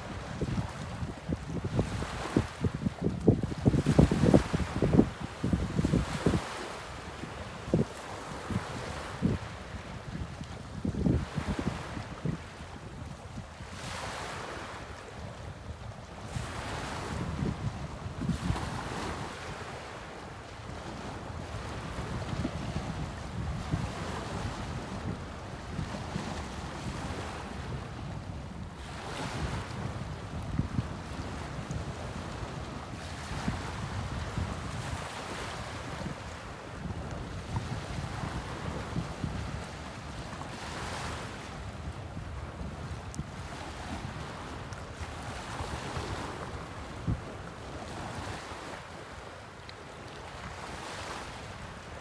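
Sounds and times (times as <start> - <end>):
wind buffeting microphone: 0.0 - 14.7, 15.4 - 20.0, 20.6 - 48.7
waves breaking on rocks: 1.6 - 9.4, 13.7 - 14.9.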